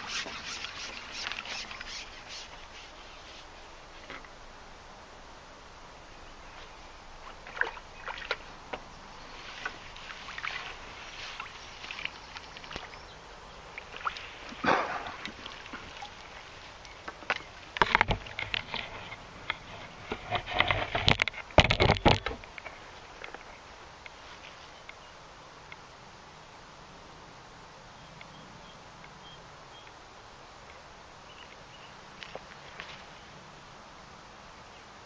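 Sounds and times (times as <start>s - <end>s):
river water splashing: 0.0s - 3.6s, 6.4s - 20.0s.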